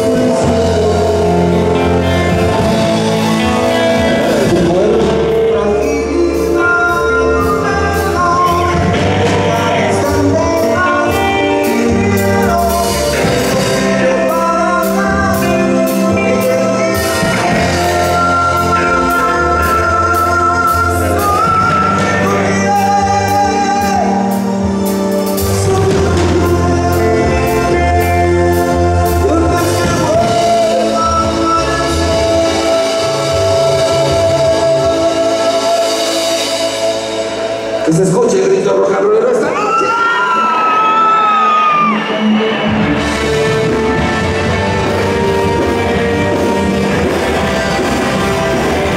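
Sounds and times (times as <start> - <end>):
drums with steady cymbal beat: 0.0 - 38.1
bass notes: 0.0 - 39.0, 41.2 - 48.9
male singer holding long notes: 0.0 - 47.8
electric guitars: 0.0 - 48.9
keyboard: 0.0 - 48.9.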